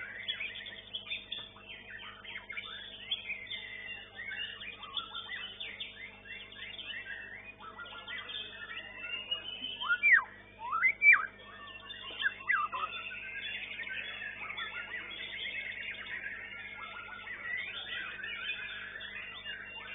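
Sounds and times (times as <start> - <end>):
chorus of songbirds: 0.0 - 19.9
faint steady hum: 0.0 - 19.9
songbird whistling: 0.1 - 19.9.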